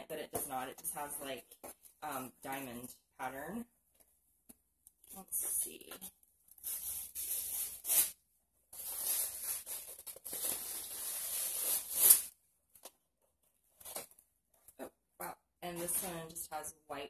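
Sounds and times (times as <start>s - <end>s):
wrapping paper tearing: 6.5s - 8.2s, 8.8s - 12.3s.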